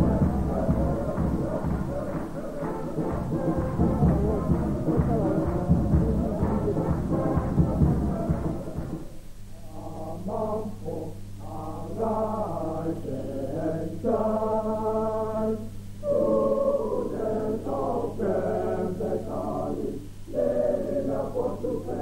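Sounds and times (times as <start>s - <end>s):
group of men chanting song: 0.0s - 22.0s
low hum: 0.0s - 22.0s.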